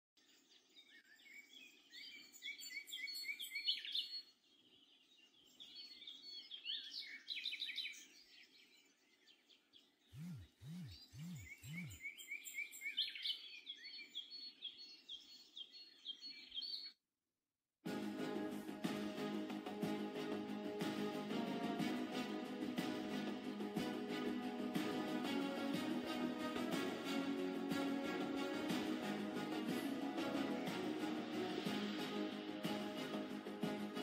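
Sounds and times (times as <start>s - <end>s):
birds chirping: 0.2s - 17.0s
music: 17.8s - 34.0s.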